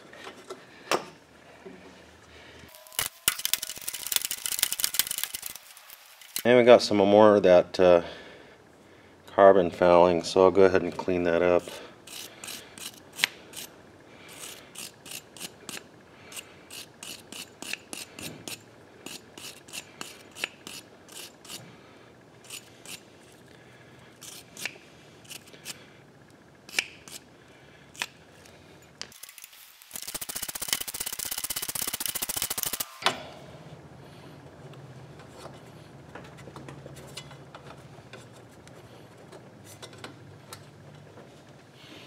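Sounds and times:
wire brush scrubbing spark plug: 29.1s - 33.0s.

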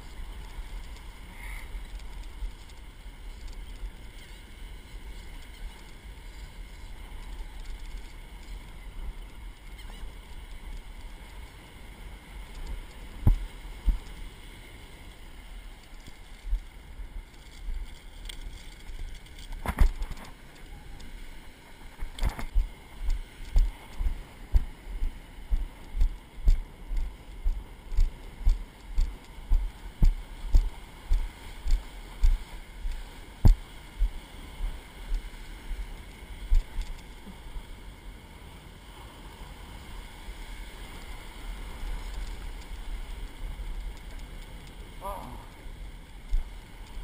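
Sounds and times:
footsteps on wet sand: 21.8s - 37.4s.

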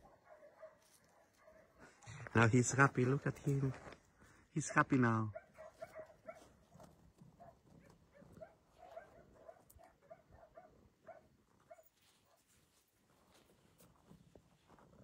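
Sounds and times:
faint dog barking: 0.0s - 2.3s, 4.6s - 12.7s.

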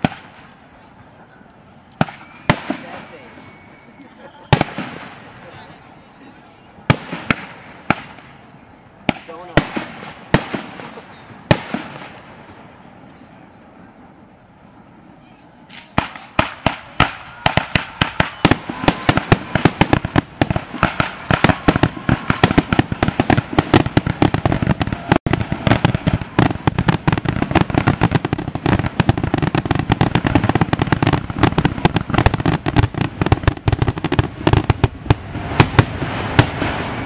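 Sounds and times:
firework shells bursting: 15.7s - 37.0s.

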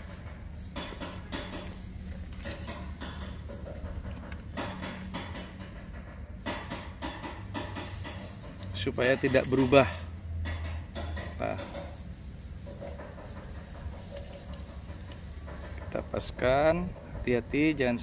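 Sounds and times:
wire scraping and clinking: 0.0s - 18.0s.

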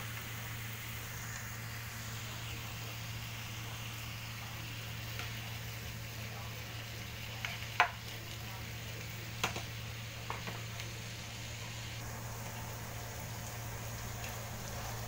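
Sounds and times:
food sizzling in frying pan: 0.0s - 15.0s
low steady hum: 0.0s - 15.0s.

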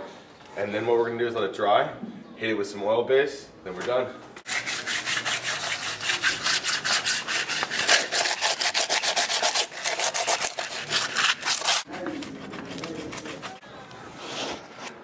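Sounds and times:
sandpaper scratching on wall: 4.4s - 15.0s.

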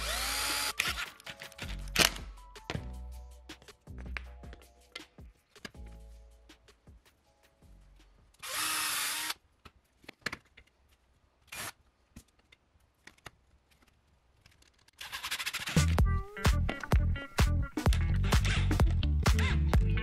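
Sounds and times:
power drill running: 0.0s - 1.0s, 8.4s - 9.4s
screws and plywood clicking: 0.0s - 2.2s.

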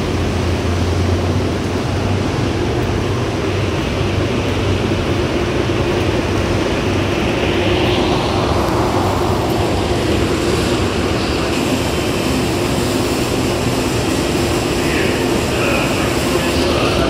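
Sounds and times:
train equipment humming: 0.0s - 17.0s.

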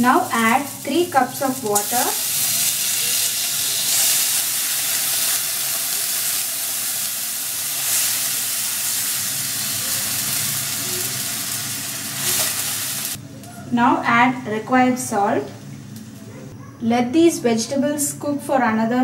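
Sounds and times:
water hissing in hot oil: 0.0s - 13.2s.

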